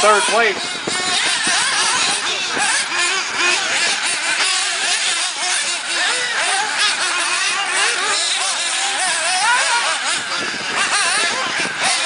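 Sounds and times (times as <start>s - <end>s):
model car engines whining: 0.0s - 12.0s.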